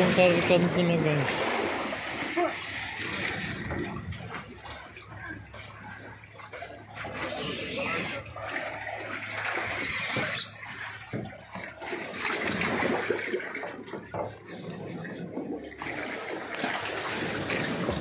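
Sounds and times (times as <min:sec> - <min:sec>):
water splashing and sloshing: 0:00.0 - 0:18.0.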